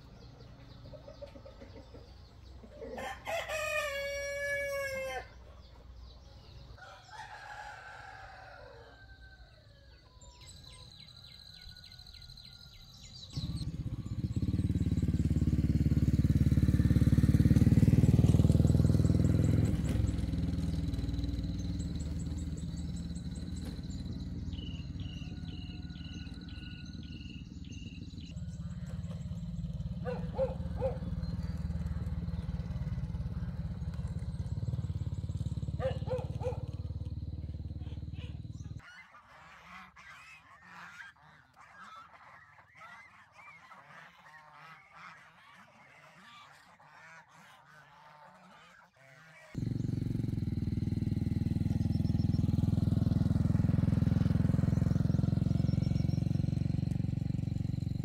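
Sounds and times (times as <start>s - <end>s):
rooster crowing: 2.8s - 5.4s, 6.8s - 10.3s, 24.5s - 27.3s
small bird chirps: 9.8s - 38.9s.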